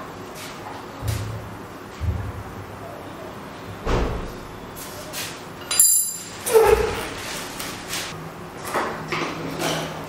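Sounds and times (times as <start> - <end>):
metal tool clinking: 5.6 - 6.5.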